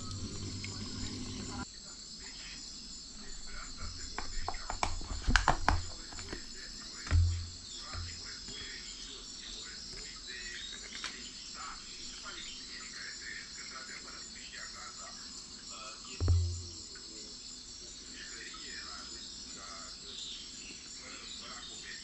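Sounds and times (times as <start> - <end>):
plastic tub clicks and knocks: 3.7 - 8.2, 16.2 - 16.8.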